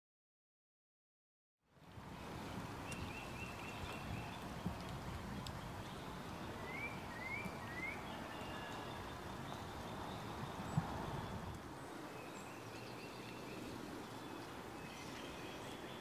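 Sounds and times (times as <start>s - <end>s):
low rumble of background noise: 1.7s - 16.0s
small birds chirping: 2.4s - 16.0s.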